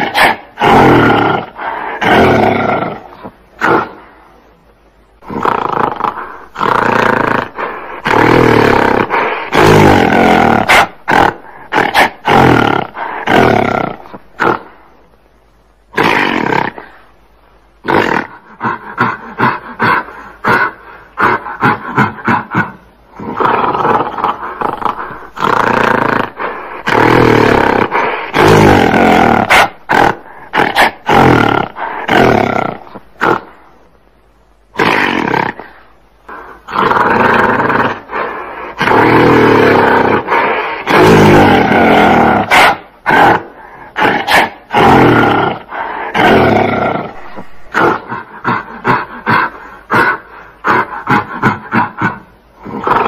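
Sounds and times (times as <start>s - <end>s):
gorilla roaring: 0.0s - 4.0s, 5.2s - 14.8s, 15.9s - 17.0s, 17.8s - 33.5s, 34.7s - 53.0s
gorilla grunting: 17.8s - 33.5s, 34.8s - 53.0s.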